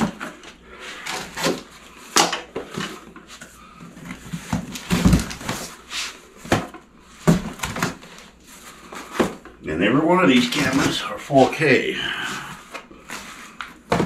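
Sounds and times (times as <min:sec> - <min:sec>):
cardboard boxes knocking and thumping: 0:04.0 - 0:05.8, 0:06.4 - 0:09.5, 0:12.6 - 0:14.0.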